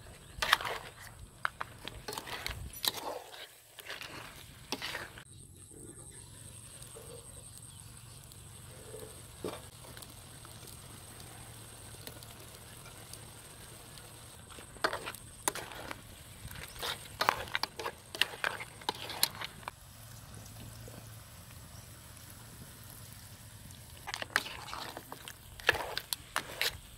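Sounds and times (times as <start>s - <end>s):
spatula scraping a wok: 0.0s - 5.3s, 12.5s - 19.8s, 23.9s - 26.9s.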